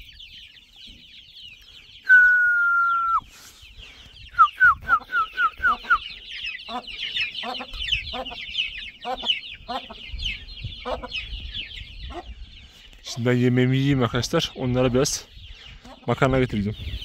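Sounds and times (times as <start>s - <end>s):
chicks cheeping: 0.0s - 17.0s
loud whistle-like note: 2.1s - 3.3s.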